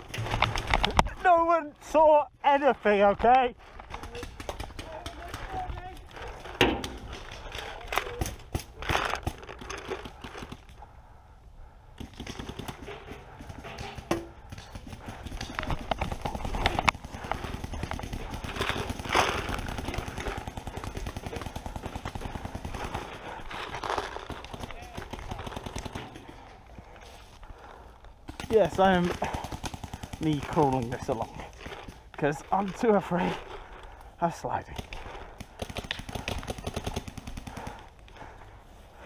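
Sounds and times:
footsteps in wet grass and mud: 15.0s - 24.7s.

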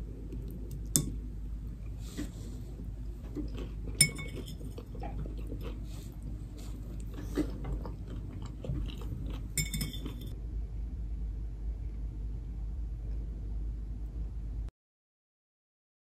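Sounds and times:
crunchy chewing: 1.9s - 10.4s
fork clinking on plate: 4.0s - 4.9s, 9.6s - 10.3s.

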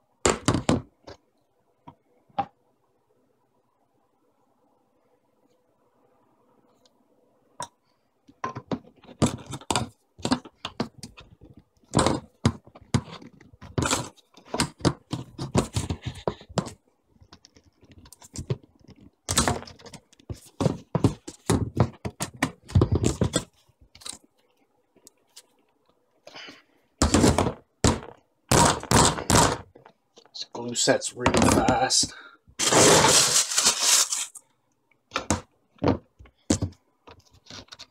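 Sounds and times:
plastic pipes knocking and clattering: 0.2s - 1.2s, 8.3s - 23.6s, 27.0s - 30.0s, 31.2s - 32.1s, 35.1s - 37.9s.

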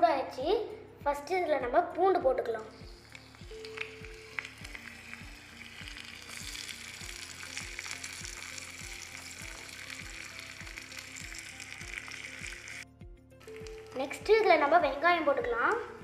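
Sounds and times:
garlic sizzling in hot oil: 2.8s - 12.8s, 13.4s - 14.8s.

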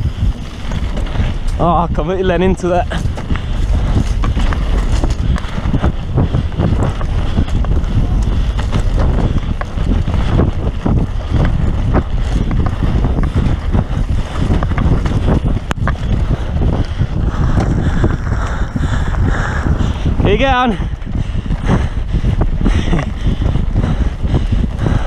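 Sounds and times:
bike rattling over bumps: 0.0s - 25.0s
bike tyre rumble on dirt: 0.0s - 25.0s
wind buffeting microphone: 0.0s - 25.0s.

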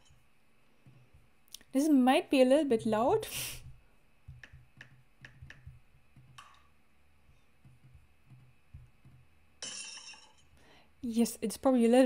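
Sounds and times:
glass shattering: 9.6s - 10.5s.

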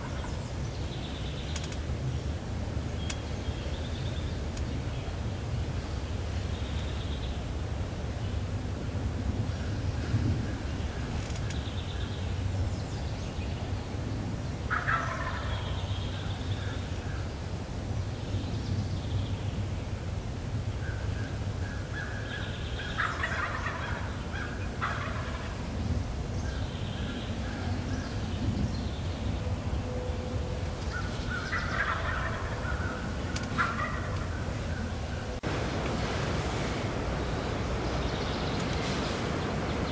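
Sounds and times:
turkeys gobbling: 0.0s - 0.4s, 14.7s - 16.8s, 21.8s - 25.6s, 30.8s - 35.3s
low wind rumble: 0.0s - 39.9s.

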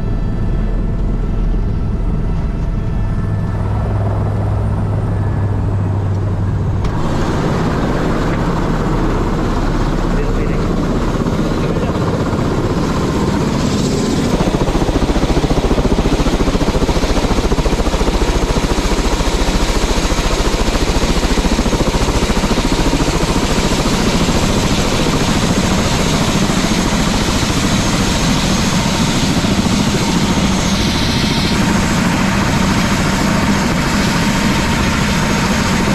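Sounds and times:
helicopter idling with rotor turning: 0.0s - 35.9s.

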